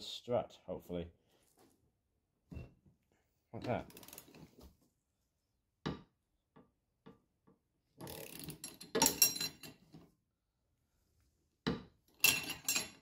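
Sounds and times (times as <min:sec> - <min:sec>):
tools clattering and scraping: 0:08.0 - 0:10.1, 0:11.7 - 0:13.0.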